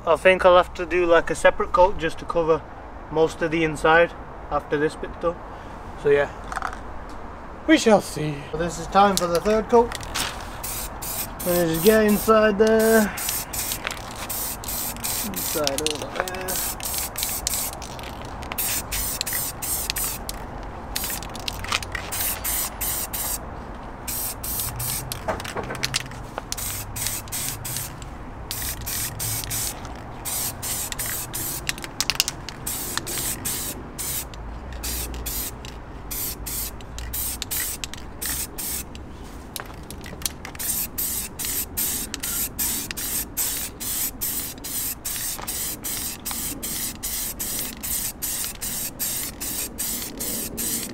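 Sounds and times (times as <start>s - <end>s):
spray paint can hissing: 10.6s - 20.4s, 21.0s - 23.4s, 24.1s - 39.0s, 39.6s - 50.9s.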